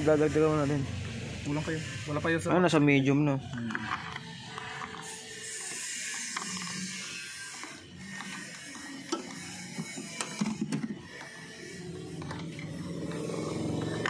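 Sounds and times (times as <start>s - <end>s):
tools clicking and rattling: 3.4s - 14.0s.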